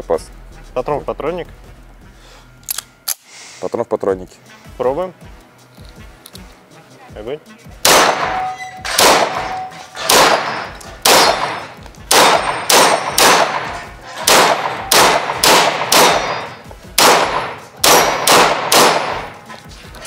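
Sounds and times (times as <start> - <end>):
pistol shots with echo: 7.8 - 19.5.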